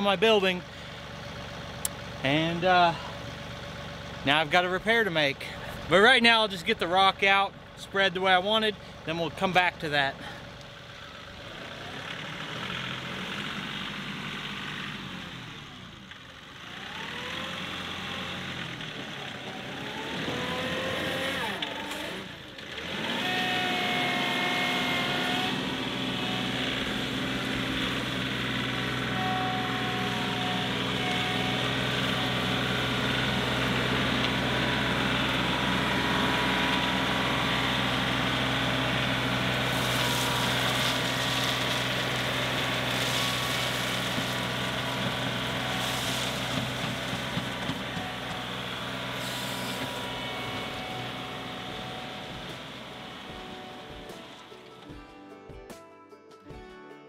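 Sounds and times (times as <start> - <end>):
tractor diesel engine running: 0.0 - 55.0
gravel pouring from bucket: 39.5 - 47.6.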